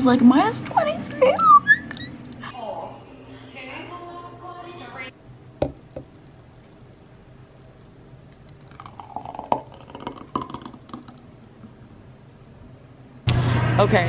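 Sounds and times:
thick liquid glugging into glass: 8.4 - 11.3.

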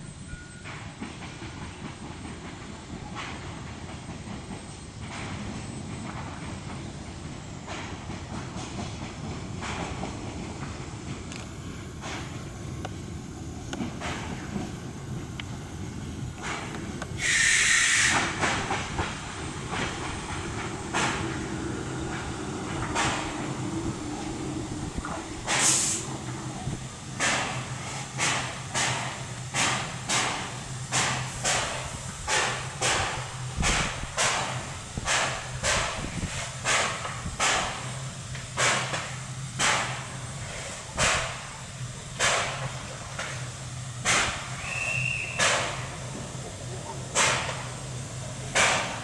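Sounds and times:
steam hiss: 13.4 - 49.0
steam locomotive puffing: 15.8 - 49.0.

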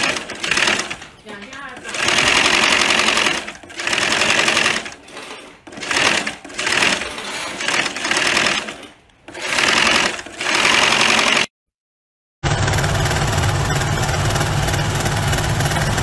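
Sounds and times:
sewing machine stitching: 0.0 - 11.5.

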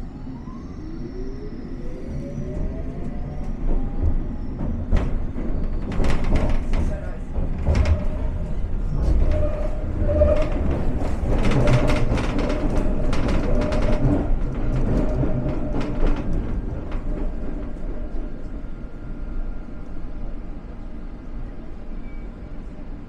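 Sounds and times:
train rumble with whine: 0.0 - 23.0
wheels clacking on track: 4.6 - 18.3.

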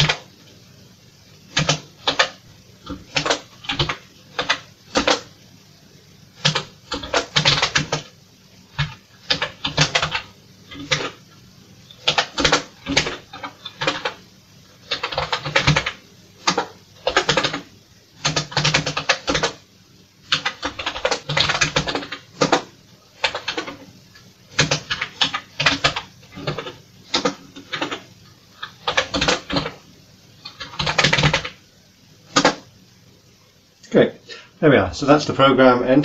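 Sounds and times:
keyboard typing: 0.0 - 0.3, 1.5 - 5.3, 6.4 - 8.1, 8.7 - 11.2, 11.9 - 14.2, 14.8 - 19.6, 20.3 - 23.9, 24.5 - 29.8, 30.4 - 31.6, 32.3 - 32.6.

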